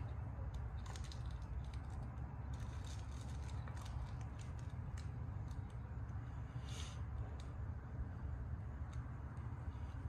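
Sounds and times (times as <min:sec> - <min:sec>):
steady low rumble: 0:00.0 - 0:10.0
plastic wrapper crinkling: 0:00.8 - 0:05.8.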